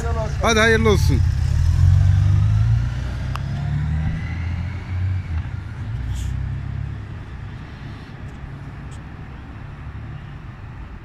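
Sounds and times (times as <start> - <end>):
motorcycle engine pulling away: 0.0 - 6.9.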